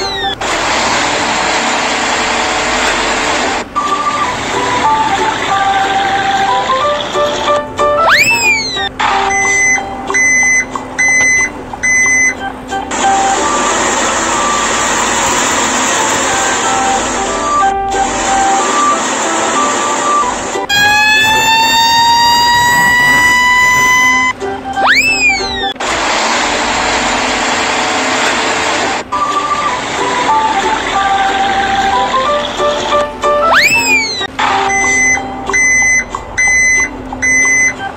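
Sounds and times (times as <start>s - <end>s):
electronic beeps: 0.0s - 0.4s, 3.8s - 5.1s, 7.9s - 15.2s, 18.4s - 25.8s, 33.4s - 37.9s
excavator machine noise: 0.0s - 37.9s
background music: 2.6s - 28.1s, 29.0s - 37.9s.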